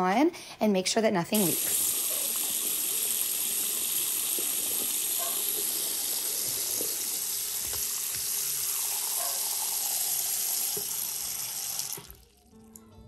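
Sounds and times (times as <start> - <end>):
water running into sink: 1.4 - 12.6
guitar music: 12.5 - 13.0.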